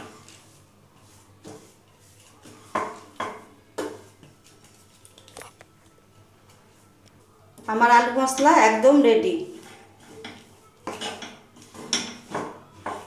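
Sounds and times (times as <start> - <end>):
wooden spatula scraping frying pan: 0.0 - 4.1, 9.4 - 13.0.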